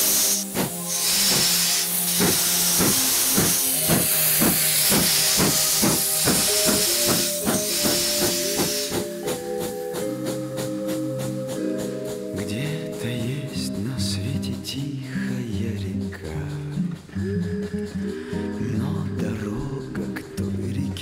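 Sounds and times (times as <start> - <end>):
background music: 0.0 - 21.0
steam locomotive chuffing: 0.0 - 21.0.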